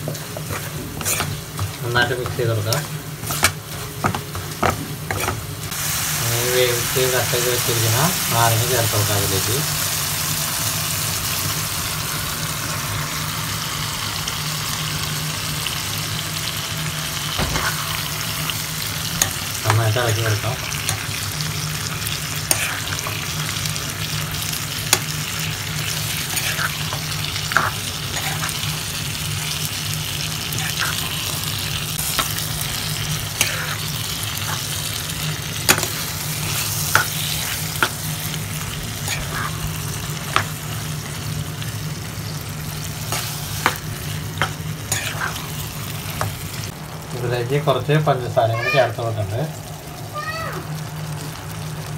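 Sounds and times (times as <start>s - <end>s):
spoon scraping a pan: 0.0s - 5.4s, 22.4s - 23.2s, 26.0s - 28.8s, 33.3s - 34.8s, 35.6s - 38.1s, 39.0s - 39.6s, 43.1s - 46.4s
food sizzling in oil: 0.0s - 51.9s.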